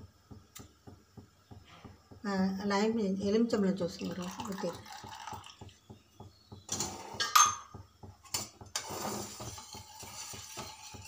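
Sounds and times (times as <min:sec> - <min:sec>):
spoon scraping saucepan: 0:08.3 - 0:11.0.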